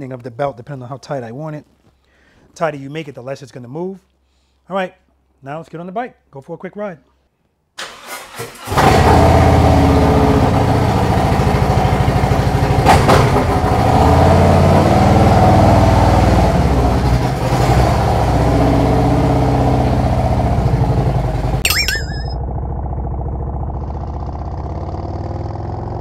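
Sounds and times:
motorcycle pulling away: 0:08.6 - 0:21.6, 0:22.4 - 0:26.0
motorcycle engine idling: 0:22.4 - 0:25.0.

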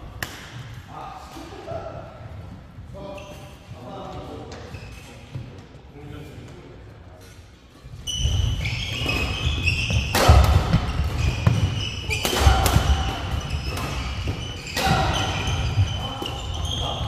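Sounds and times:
sneakers squeaking: 0:03.0 - 0:05.6, 0:07.8 - 0:17.0
racket hitting shuttlecock: 0:09.0 - 0:16.4.

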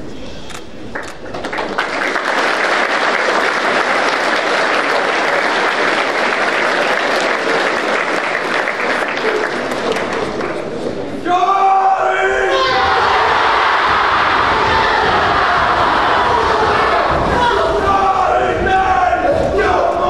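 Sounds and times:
large crowd clapping: 0:00.9 - 0:10.8, 0:12.8 - 0:18.3.

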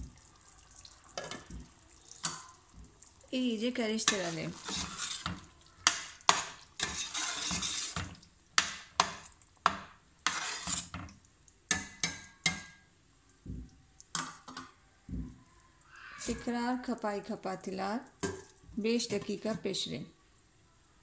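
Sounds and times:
metal spoon scraping pot: 0:04.0 - 0:08.2, 0:10.2 - 0:11.0.

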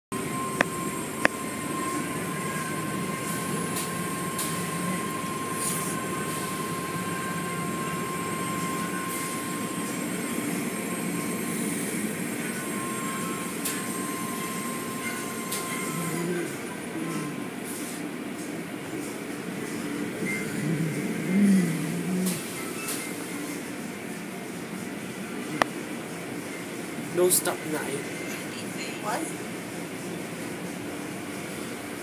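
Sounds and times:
constant high whine: 0:00.1 - 0:32.0.

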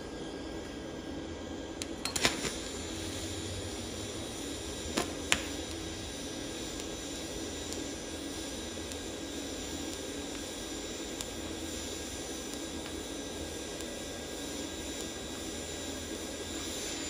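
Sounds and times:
welding arc burning over hum: 0:00.0 - 0:17.0
welding arc crackling clicks: 0:01.8 - 0:02.8, 0:04.8 - 0:15.5
sharp welding pops: 0:01.8 - 0:17.0.

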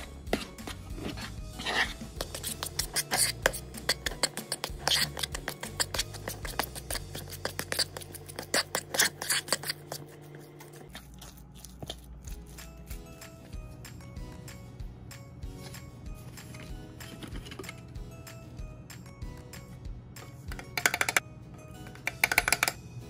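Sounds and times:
spoon scraping plastic bowl: 0:00.0 - 0:12.0.

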